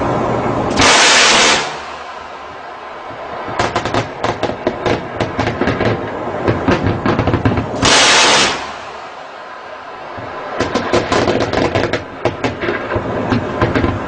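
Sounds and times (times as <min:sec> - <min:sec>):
loud blast: 0:00.0 - 0:14.0
machine-gun fire bursts: 0:00.8 - 0:02.0, 0:07.8 - 0:08.9.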